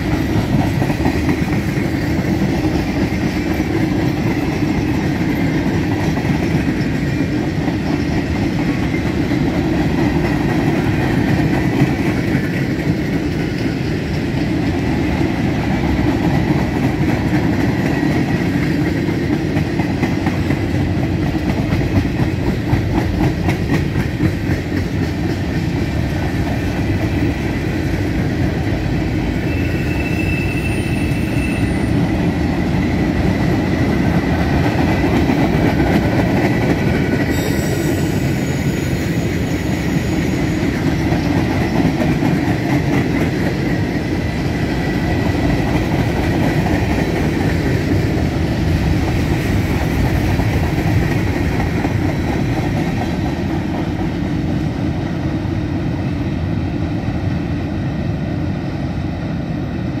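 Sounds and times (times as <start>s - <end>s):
train wheels rumbling on rails: 0.0s - 60.0s
wheel squeals: 29.4s - 32.0s.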